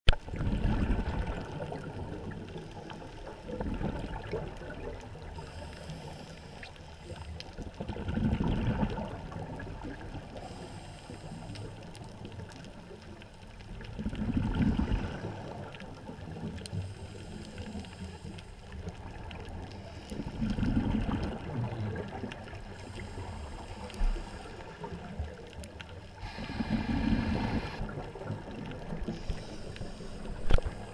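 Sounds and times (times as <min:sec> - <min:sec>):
exhaled bubbles rumbling: 0:00.1 - 0:05.6, 0:07.0 - 0:10.6, 0:11.6 - 0:17.1, 0:17.8 - 0:30.9
regulator hiss on inhale: 0:05.4 - 0:07.4, 0:10.3 - 0:12.1, 0:16.7 - 0:18.9, 0:19.7 - 0:20.6, 0:22.6 - 0:24.9, 0:26.2 - 0:27.9, 0:29.0 - 0:30.9.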